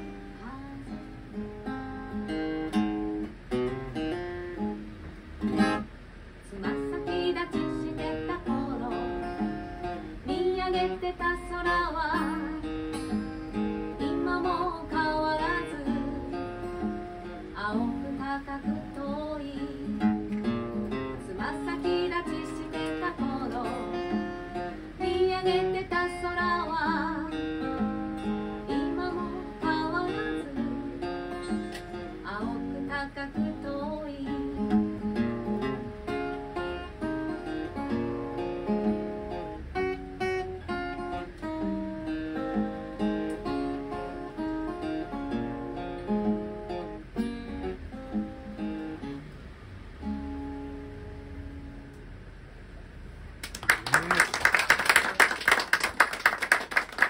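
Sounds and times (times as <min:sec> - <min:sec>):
acoustic guitar strummed and picked: 0:00.0 - 0:52.0
woman singing with vibrato: 0:00.3 - 0:02.2, 0:06.4 - 0:13.2, 0:14.0 - 0:16.8, 0:17.4 - 0:20.2, 0:21.2 - 0:27.7, 0:28.6 - 0:34.8.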